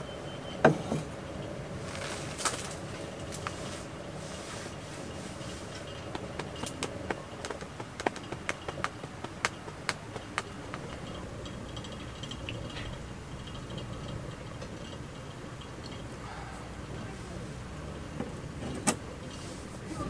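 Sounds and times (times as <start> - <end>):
low steady hum: 0.0 - 20.0
fire crackling: 1.4 - 18.5
sharp pops: 6.1 - 11.2.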